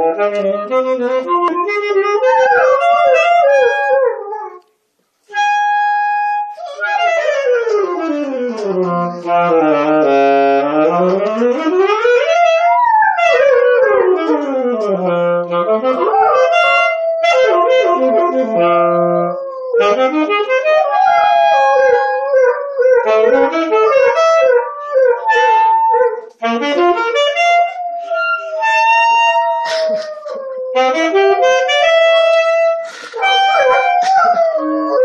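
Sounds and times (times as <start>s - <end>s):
saxophone sliding notes: 0.0s - 35.0s
dog howling: 2.2s - 4.6s, 12.4s - 14.8s, 15.8s - 20.0s, 20.7s - 26.3s, 33.2s - 35.0s.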